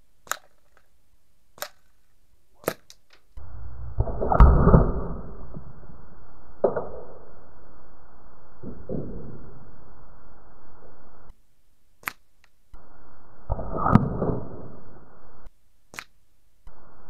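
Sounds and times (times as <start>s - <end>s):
airgun cracks: 0.2s - 0.9s
steady low noise: 2.2s - 17.0s.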